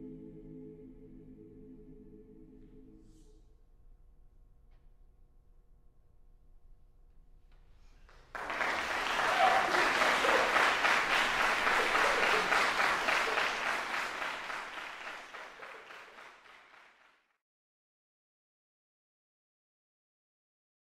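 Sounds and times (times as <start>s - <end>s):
audience applauding: 8.1s - 17.2s.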